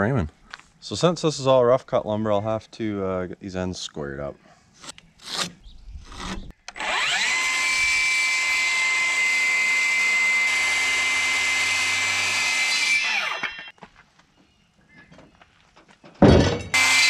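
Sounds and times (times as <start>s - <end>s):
circular saw cutting wood: 4.8s - 13.7s, 16.7s - 17.0s.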